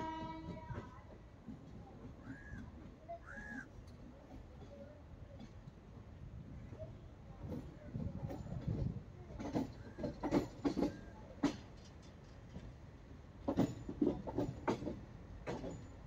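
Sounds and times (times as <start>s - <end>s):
train wheels clacking: 6.8s - 16.0s.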